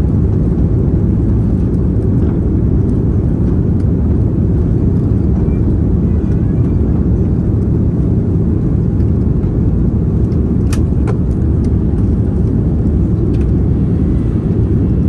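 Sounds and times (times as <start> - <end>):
airplane cabin engine rumble: 0.0 - 15.0
light clicks in cabin: 5.0 - 6.8, 10.3 - 13.6.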